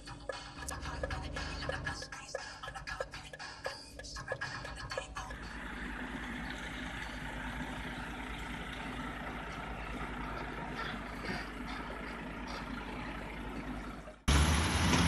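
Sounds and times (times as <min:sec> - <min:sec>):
truck diesel engine running: 0:00.5 - 0:02.0, 0:05.3 - 0:15.0.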